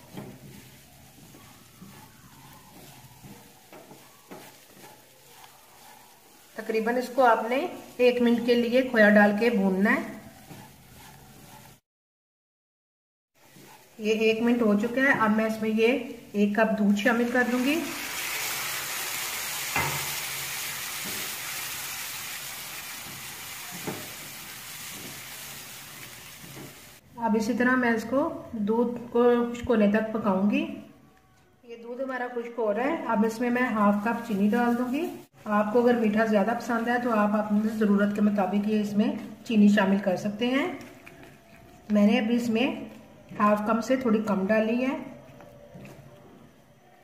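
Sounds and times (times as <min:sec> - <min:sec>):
food frying in oil: 0:00.0 - 0:11.8, 0:16.1 - 0:27.0
milk sizzling in a hot pan: 0:00.0 - 0:11.8, 0:13.5 - 0:27.0
spatula scraping a pan: 0:00.0 - 0:11.8
spatula stirring: 0:00.0 - 0:11.8, 0:13.4 - 0:14.4, 0:17.0 - 0:27.0, 0:40.6 - 0:42.2.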